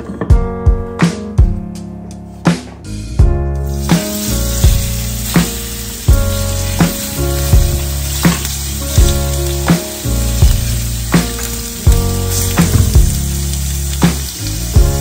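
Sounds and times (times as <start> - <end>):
background music with beat: 0.0 - 15.0
ribs sizzling in oil: 3.6 - 15.0.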